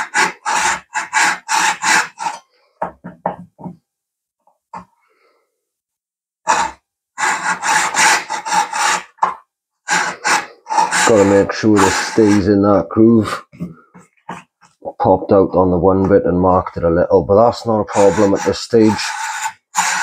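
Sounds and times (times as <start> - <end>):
hacksaw cutting: 0.0 - 2.4, 6.5 - 12.6, 17.9 - 20.0.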